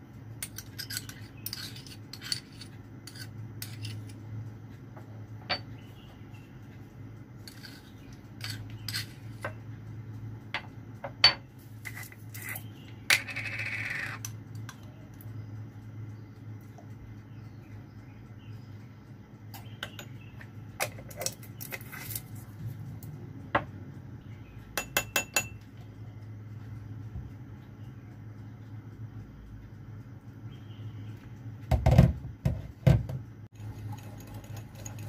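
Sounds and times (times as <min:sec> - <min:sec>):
steady low hum: 0:00.0 - 0:35.0
utensils and dishes clinking: 0:00.4 - 0:04.2, 0:33.6 - 0:35.0.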